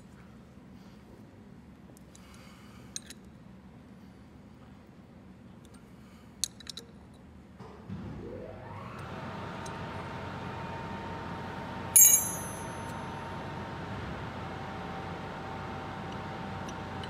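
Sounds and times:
motor spinning up and humming: 7.9s - 17.0s
wrench clanging on concrete: 12.0s - 12.8s.

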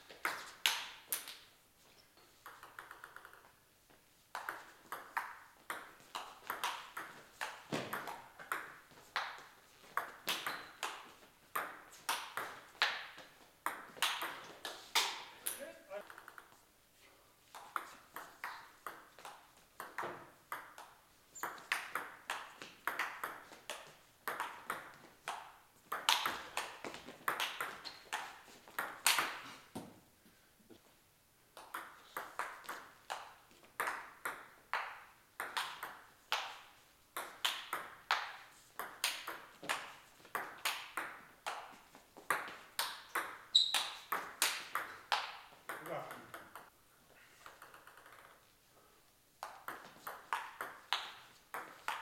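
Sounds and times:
table tennis ball clicking: 2.4s - 3.5s, 47.5s - 48.3s.

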